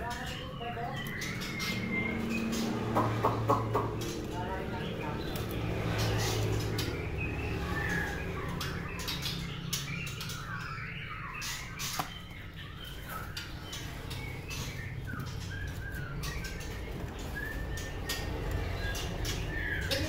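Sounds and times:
bird chirping song: 0.0s - 20.0s
sharp taps in cage: 2.5s - 4.4s, 11.8s - 12.3s.

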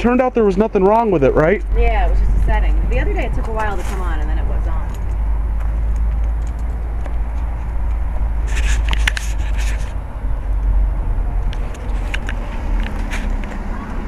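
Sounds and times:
wind noise: 0.0s - 14.0s
microphone handling noise: 1.6s - 10.6s
clicks and rustles: 3.4s - 10.7s, 11.4s - 13.7s.

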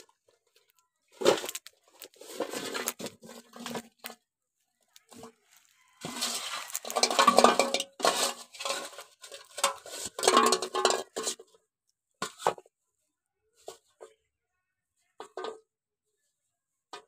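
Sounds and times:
snail shells clinking on metal bowl: 6.0s - 11.4s.

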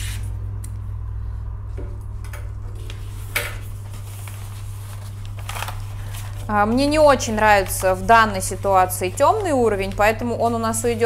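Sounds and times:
steady low hum: 0.0s - 11.0s
plastic wrapping film crackling: 2.8s - 11.0s.

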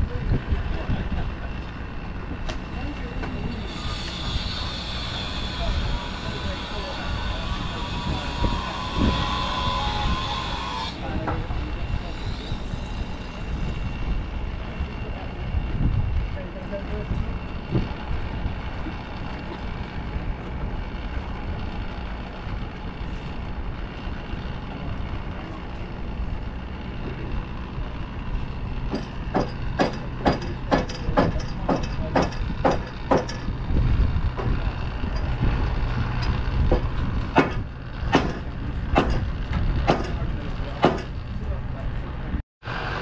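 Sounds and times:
knocking on timber posts: 28.9s - 33.4s, 36.7s - 40.2s
steady low rumble: 31.9s - 42.4s.

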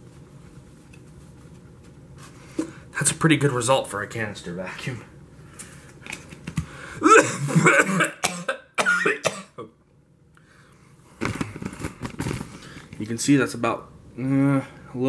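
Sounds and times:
man coughing: 7.0s - 9.8s
plastic container rustling: 11.2s - 13.1s.

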